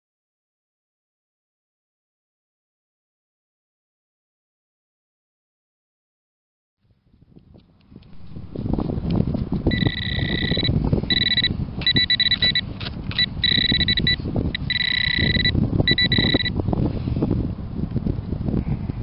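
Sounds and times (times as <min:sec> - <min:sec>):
metal detector probe beeping: 0:09.7 - 0:16.6.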